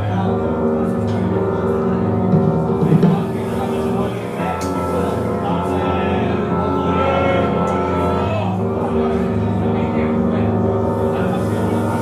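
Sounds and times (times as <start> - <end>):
live band music: 2.3 - 8.3.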